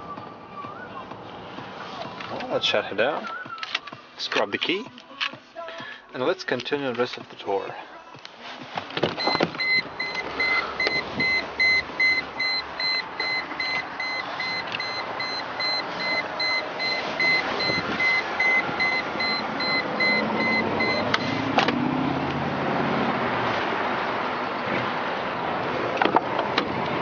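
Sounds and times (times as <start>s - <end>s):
car warning chime beeping: 9.2s - 21.5s.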